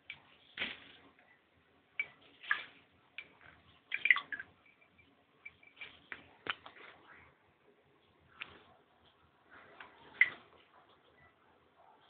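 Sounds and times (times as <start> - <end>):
water splashing and dripping: 2.0 - 4.8, 10.0 - 10.6.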